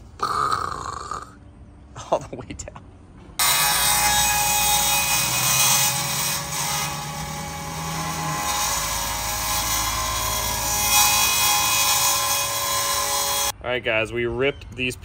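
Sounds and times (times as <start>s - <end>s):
circular saw cutting board: 3.4s - 13.5s
saw motor hum: 3.4s - 13.5s.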